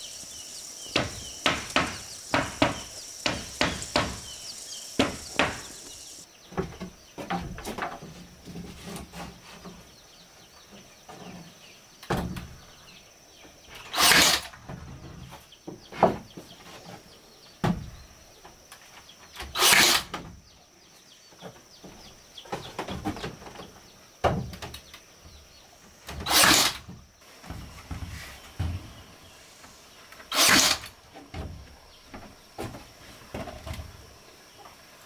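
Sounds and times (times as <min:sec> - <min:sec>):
wooden knocks: 0:00.9 - 0:06.2
nail gun firing: 0:19.6 - 0:20.1, 0:26.3 - 0:26.8, 0:30.3 - 0:30.9.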